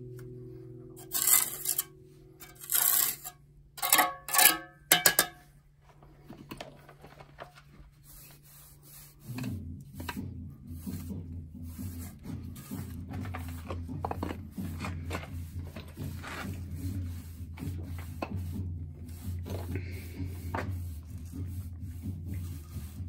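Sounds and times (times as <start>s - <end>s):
jointer scraping mortar joints: 1.0s - 5.3s, 10.9s - 23.0s.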